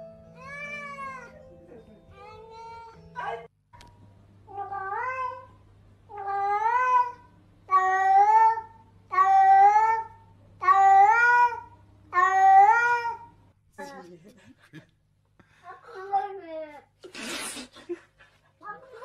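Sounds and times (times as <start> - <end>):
cat meowing: 0.4 - 1.4, 4.5 - 5.5.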